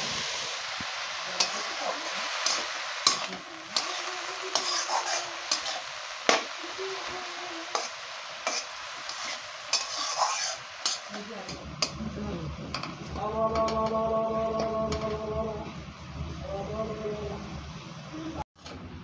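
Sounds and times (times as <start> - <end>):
greens sizzling in a pan: 0.0 - 13.8
metal spatula scraping a pan: 1.4 - 6.5, 7.6 - 12.0.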